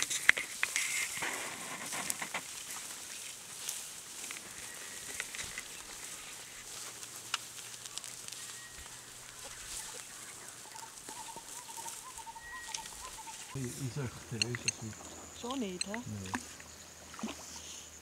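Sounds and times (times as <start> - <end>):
footsteps through dry grass: 0.0 - 14.4
birds calling: 4.2 - 18.0
wavering repeated bird call: 8.2 - 13.6.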